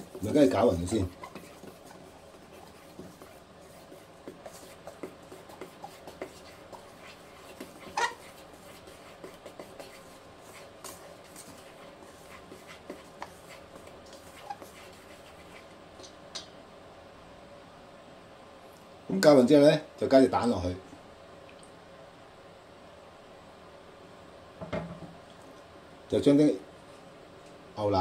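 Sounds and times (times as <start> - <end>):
utensil scraping metal bowl: 0.0 - 15.7.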